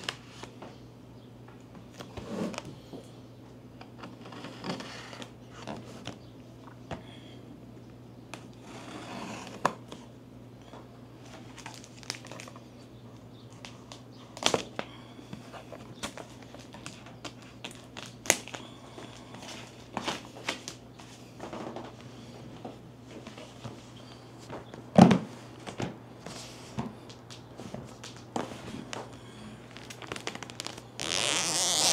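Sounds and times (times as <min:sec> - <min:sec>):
plastic packaging crinkling: 0:11.3 - 0:12.7, 0:15.8 - 0:20.8, 0:27.9 - 0:31.9.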